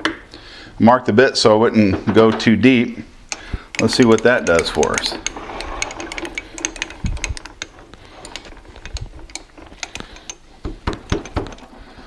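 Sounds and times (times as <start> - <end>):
light metal clicks and knocks: 3.3 - 12.0.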